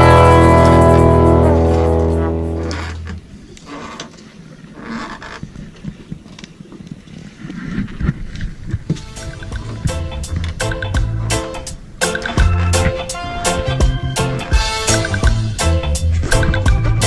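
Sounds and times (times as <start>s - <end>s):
guitar music: 0.0s - 3.0s
boat noise rumbling: 0.0s - 17.0s
wind on microphone: 5.4s - 14.6s, 15.2s - 17.0s.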